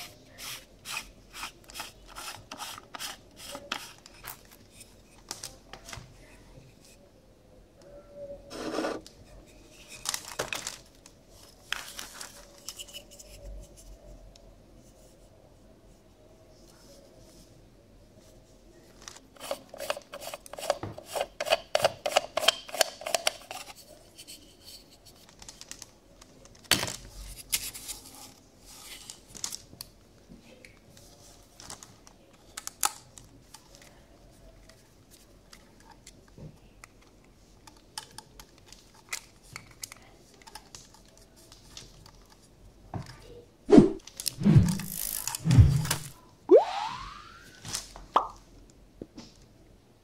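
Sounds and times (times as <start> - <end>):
plastic parts clicking and scraping: 19.0 - 27.9, 34.6 - 42.5, 44.0 - 46.1
swooping cartoon sound effect: 45.5 - 47.7.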